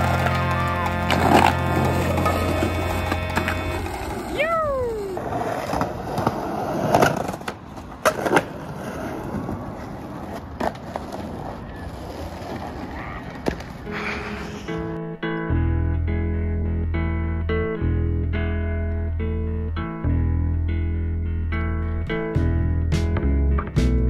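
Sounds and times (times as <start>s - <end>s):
skateboard clacks: 0.0s - 4.3s, 5.0s - 14.6s
skateboard wheels rolling: 0.0s - 15.0s.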